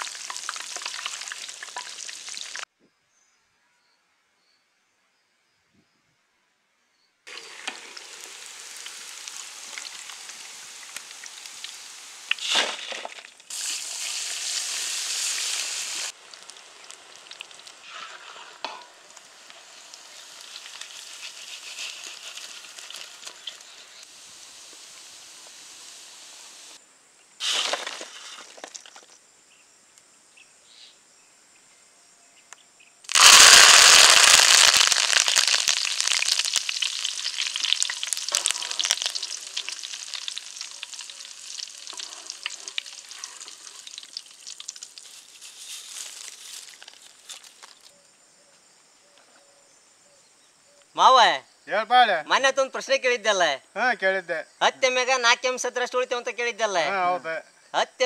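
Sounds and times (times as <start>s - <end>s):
meat deep-frying in oil: 0.0s - 2.6s, 7.3s - 26.8s, 33.1s - 47.8s.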